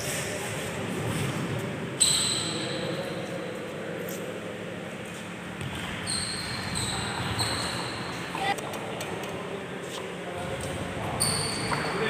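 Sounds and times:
high squeak-like tone: 6.0 - 8.5.

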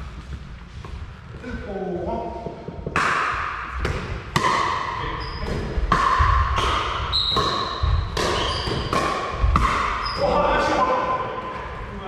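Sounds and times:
sneakers squeaking on wooden floor: 5.0 - 10.5.

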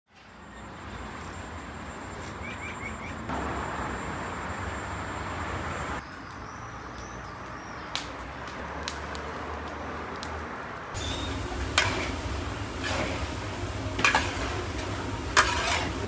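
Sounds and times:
fire crackles: 5.8 - 16.0
fire rumbling in oven: 8.4 - 16.0
metal ladle scraping pot: 15.3 - 16.0.

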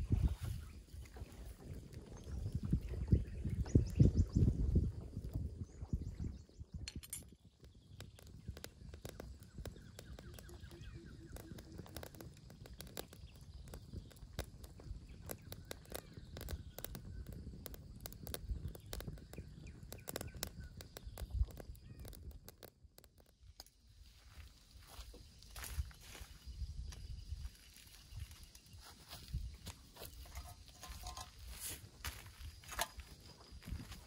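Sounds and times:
campfire crackling and snapping: 7.0 - 26.2, 27.2 - 34.0.

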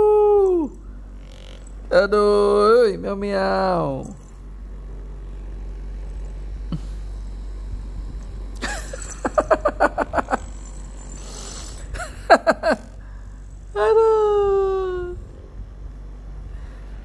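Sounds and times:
electric massager humming: 0.0 - 17.0
rapid laughter: 8.6 - 10.6, 11.8 - 13.1.

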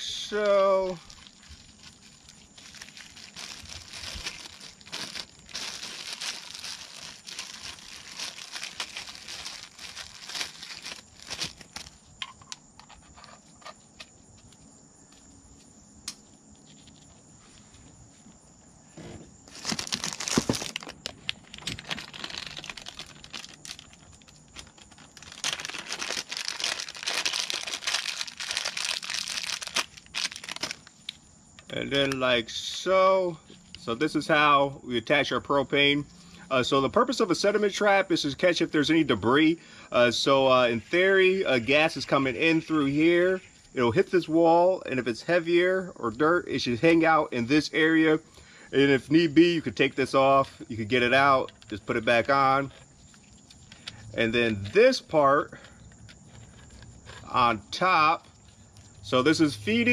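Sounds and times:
plastic crinkling and rustling: 0.3 - 14.5, 19.5 - 31.0, 51.4 - 51.8, 55.8 - 57.3
tape tearing: 1.3 - 12.0, 19.5 - 30.9.

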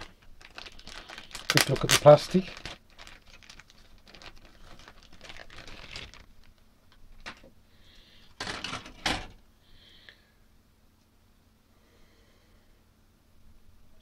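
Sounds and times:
plastic parts clattering: 0.0 - 7.5, 8.2 - 9.4
plastic parts clicking and rustling: 0.0 - 7.5, 8.2 - 9.4.

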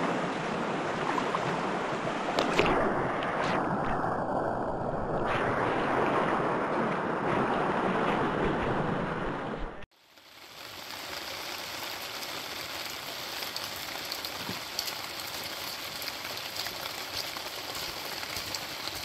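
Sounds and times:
rushing creek: 0.0 - 3.6, 5.8 - 19.0
steady rain falling: 9.9 - 19.0.

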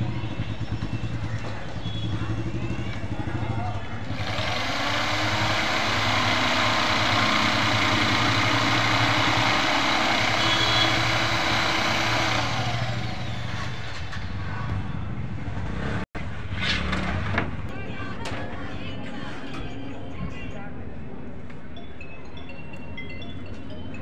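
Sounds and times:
jigsaw cutting plywood: 4.1 - 13.8.

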